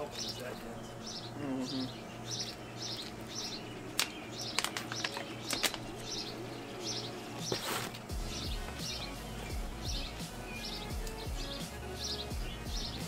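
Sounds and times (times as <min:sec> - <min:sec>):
steady low hum: 0:00.0 - 0:13.0
small bird chirping: 0:00.1 - 0:13.0
sharp clicks: 0:04.0 - 0:06.2.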